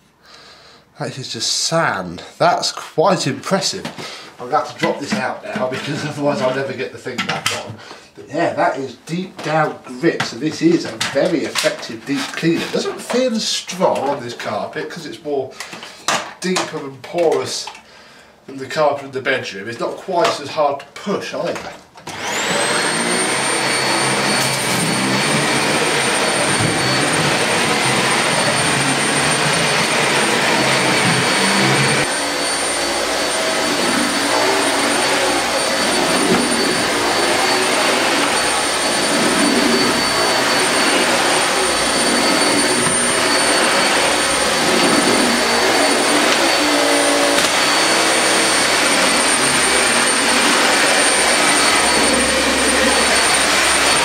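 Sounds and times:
vacuum cleaner running: 3.6s - 6.7s, 22.0s - 54.0s.

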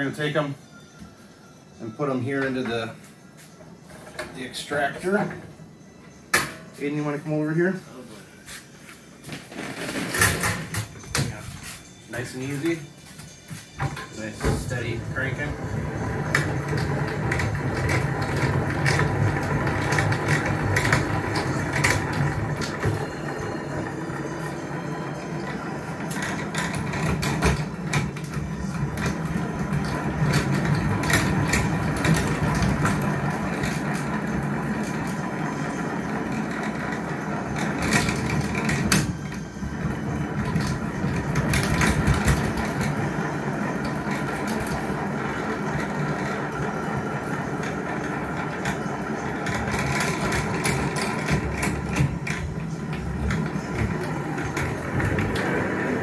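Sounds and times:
hand-cranked extractor gears whirring: 14.2s - 56.0s.

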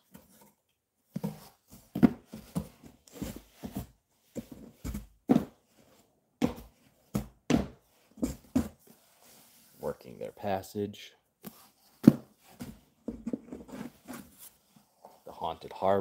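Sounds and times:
rustling in a cardboard box: 1.1s - 6.0s, 11.4s - 15.3s.

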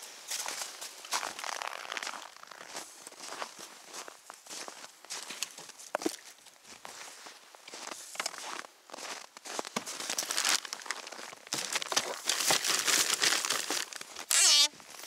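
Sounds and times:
material crinkling and rustling: 9.6s - 15.0s.

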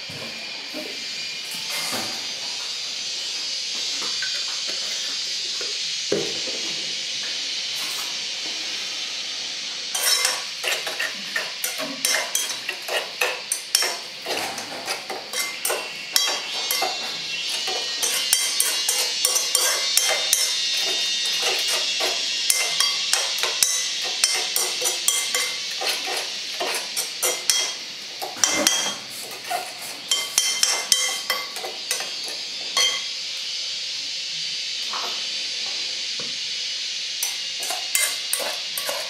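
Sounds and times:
metal spoon scraping metal bowl: 9.9s - 33.1s, 37.2s - 39.0s.

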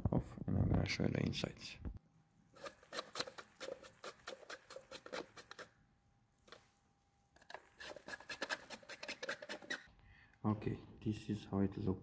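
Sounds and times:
screwdriver scratchy clicking: 7.4s - 9.9s.

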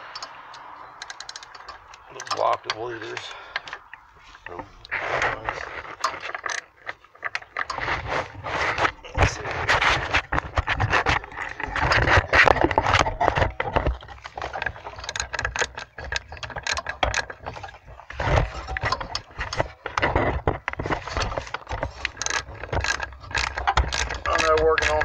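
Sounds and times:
socket ratchet clicking: 0.0s - 2.4s.

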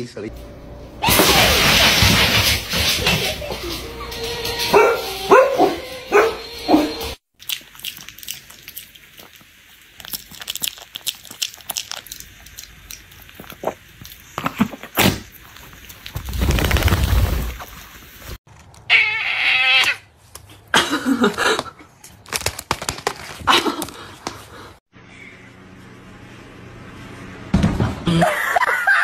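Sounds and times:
dogs barking: 4.6s - 7.2s.

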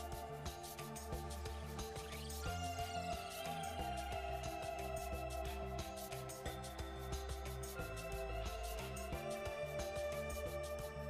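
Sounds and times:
instrumental music with beat: 0.0s - 11.0s.

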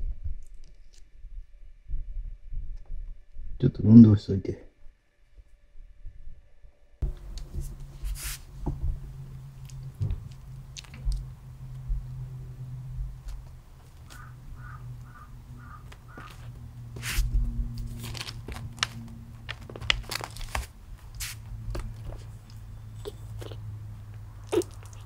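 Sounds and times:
steady low hum: 0.0s - 25.0s
rustling against plastic packing: 12.9s - 23.6s.

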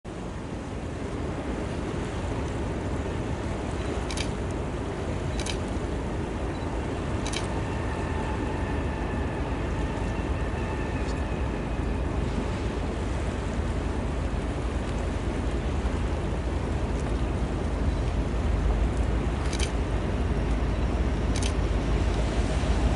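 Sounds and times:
wind rumble on microphone: 0.1s - 22.9s.

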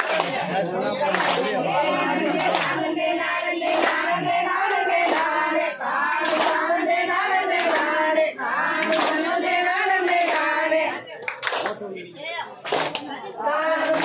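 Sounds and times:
group clapping in unison: 0.0s - 14.0s
women singing folk song together: 1.6s - 11.2s, 13.2s - 14.0s.

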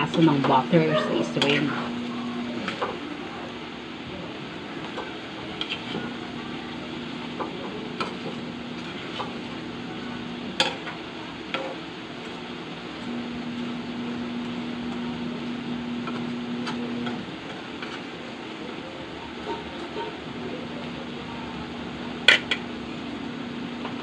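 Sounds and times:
low steady hum: 0.0s - 24.0s
sauce bubbling and sizzling: 1.2s - 24.0s
metal spatula scraping pan: 19.2s - 20.2s.

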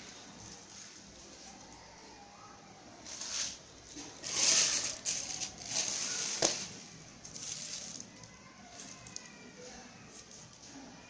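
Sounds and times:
plastic wrapping crinkling: 3.0s - 9.4s.

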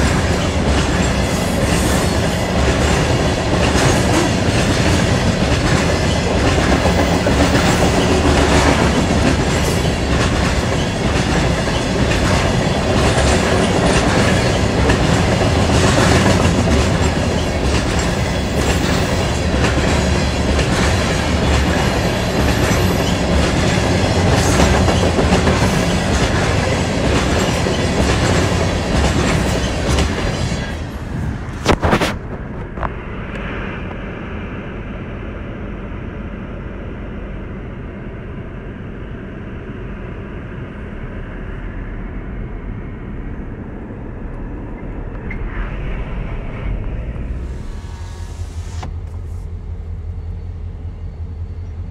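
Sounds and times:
train wheels clacking over rail joints: 0.0s - 32.9s.

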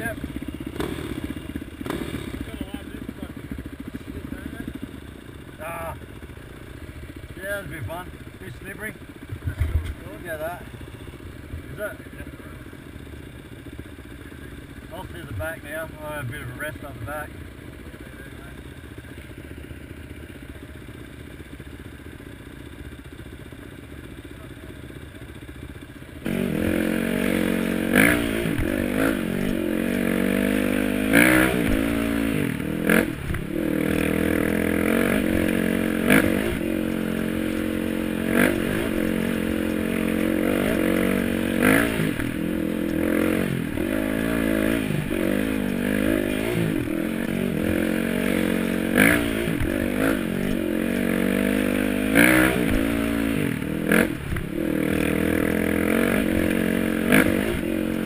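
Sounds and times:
motorbike engine revving: 0.0s - 12.8s, 26.1s - 58.0s
dirt bike engines idling: 0.0s - 58.0s.

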